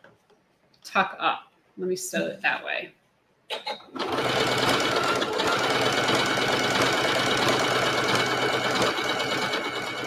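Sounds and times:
sewing machine stitching: 4.0s - 10.0s.

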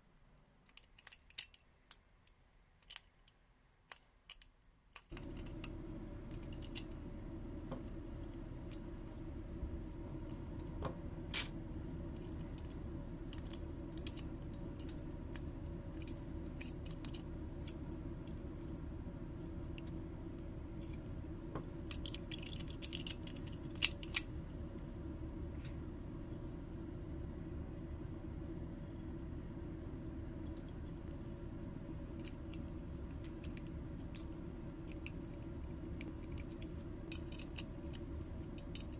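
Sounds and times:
steady low hum: 0.0s - 38.9s
metal parts clinking: 0.6s - 1.7s, 2.8s - 5.7s, 6.3s - 7.0s, 12.2s - 18.4s, 21.9s - 24.2s, 32.1s - 38.9s.

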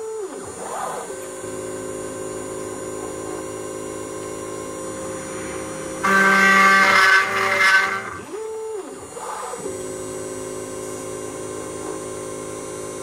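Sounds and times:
cnc router cutting plywood: 0.0s - 9.8s.

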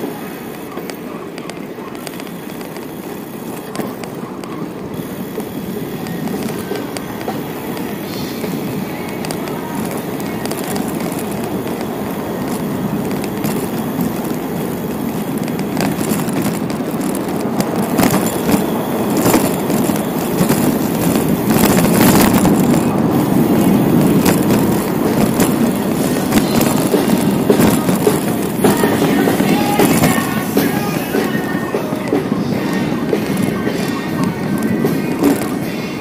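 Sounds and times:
bicycle tyres rumbling on pavement: 0.0s - 36.0s.

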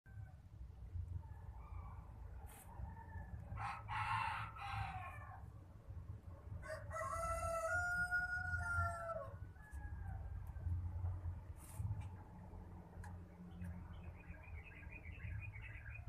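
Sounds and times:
rooster crowing: 2.8s - 5.5s, 6.6s - 10.6s.

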